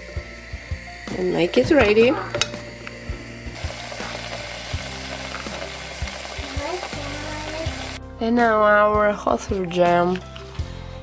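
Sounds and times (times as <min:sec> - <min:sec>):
jam bubbling and sizzling in saucepan: 0:00.0 - 0:08.0.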